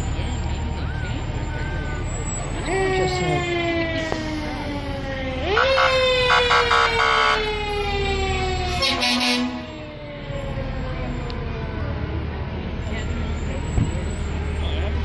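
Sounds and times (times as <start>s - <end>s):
short air horn blasts: 8.8s - 9.6s.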